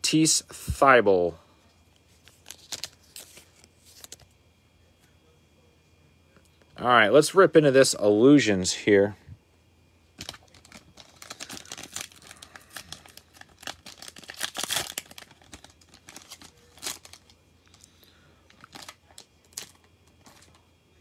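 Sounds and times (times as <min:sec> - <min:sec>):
plastic wrapper tearing and crinkling: 0:02.2 - 0:04.2, 0:10.2 - 0:17.9, 0:18.5 - 0:20.6.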